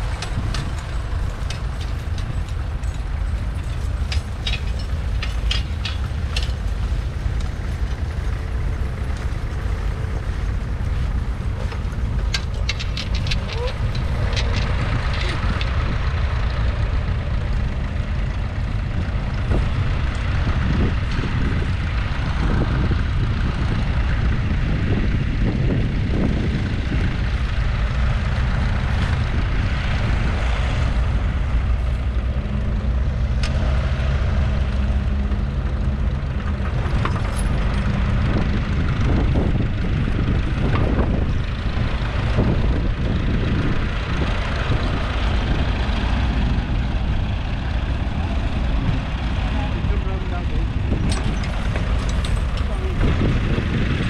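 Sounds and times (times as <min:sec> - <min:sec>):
wind buffeting microphone: 0:00.0 - 0:54.0.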